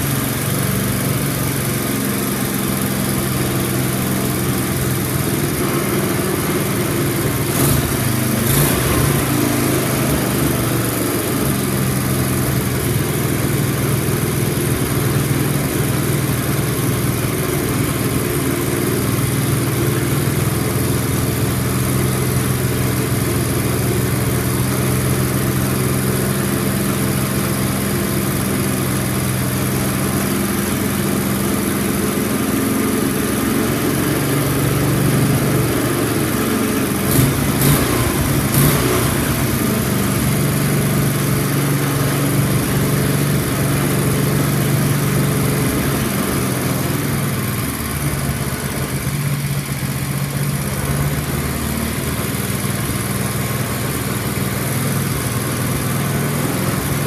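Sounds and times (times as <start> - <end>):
snowblower engine running: 0.0 - 57.0.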